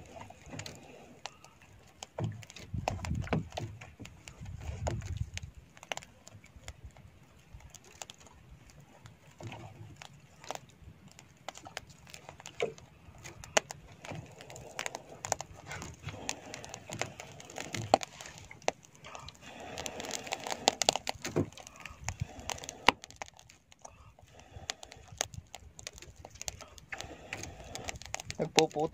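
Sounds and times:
open fire crackling: 0.0 - 28.9.

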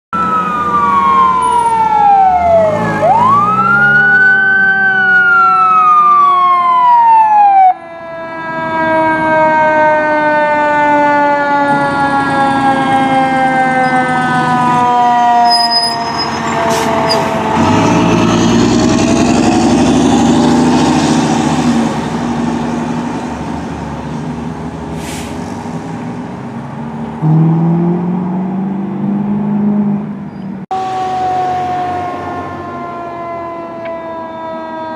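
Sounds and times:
wailing siren: 0.1 - 23.6, 30.7 - 34.9
truck engine passing: 0.2 - 7.7, 8.3 - 33.7
siren tone winding down: 0.2 - 21.8, 30.7 - 34.9.

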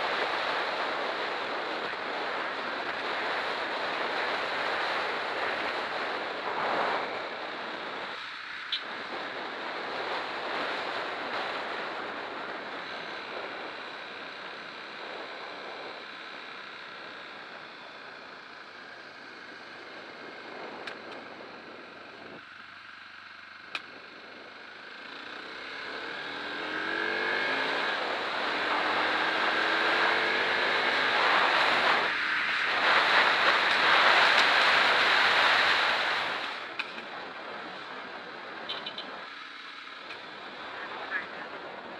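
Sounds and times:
wind rushing over microphone: 0.0 - 8.2, 26.6 - 39.3
motorcycle engine: 13.0 - 41.5.

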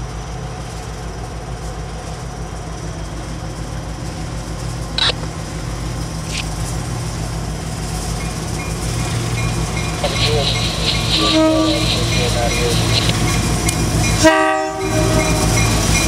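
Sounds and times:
diesel locomotive engine rumbling: 0.0 - 16.0
sharp click: 5.0 - 5.2.

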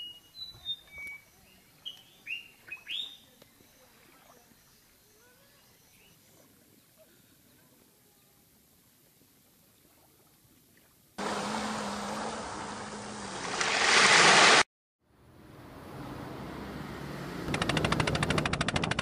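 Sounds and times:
steady rush of water: 11.2 - 14.6
waves breaking on beach: 11.2 - 14.7.

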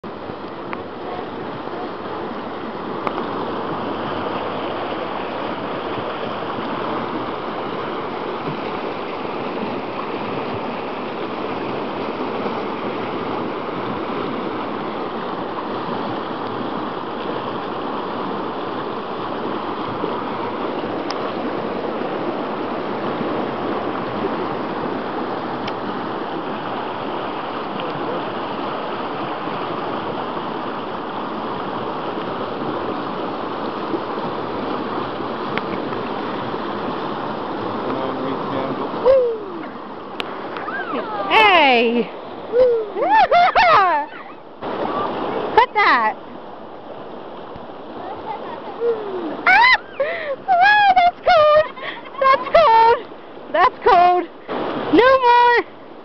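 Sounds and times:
river water rushing over rapids: 0.0 - 56.0.

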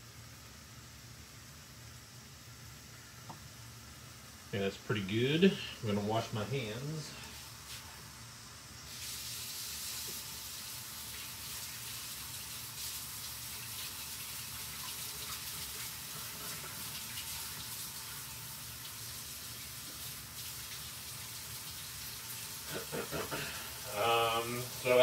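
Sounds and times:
faucet water running into sink: 8.9 - 25.0.

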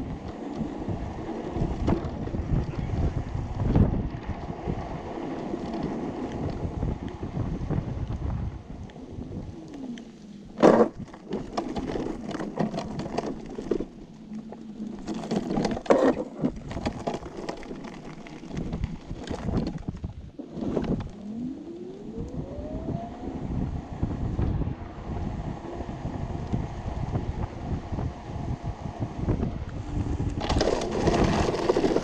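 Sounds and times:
wheels crunching on gravel: 0.0 - 22.0, 24.0 - 32.0
wind rumble on microphone: 0.0 - 32.0
electric motor whine: 20.5 - 32.0.

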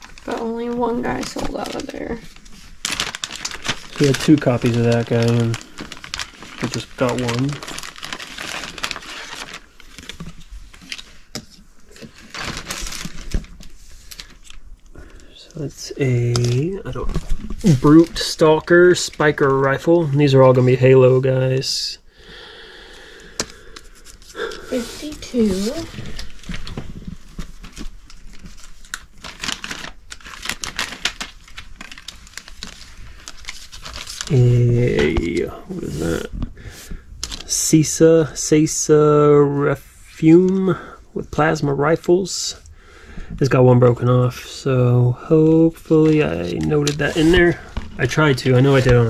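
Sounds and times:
packaging rustling: 0.0 - 19.8, 23.3 - 38.0, 45.2 - 49.0.

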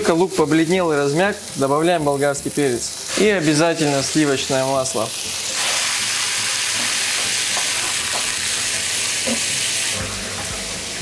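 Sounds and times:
food sizzling in a frying pan: 0.0 - 11.0.

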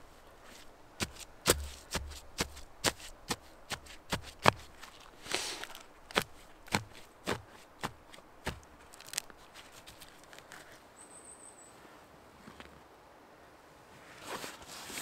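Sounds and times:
moss rustling and tearing: 0.4 - 10.8
hatchet chopping into ground: 1.0 - 4.8, 6.1 - 9.3.

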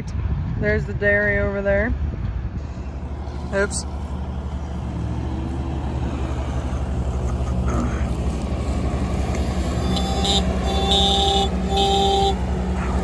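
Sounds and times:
loader engine running: 2.5 - 13.0
vehicle horn honking: 9.8 - 12.5.

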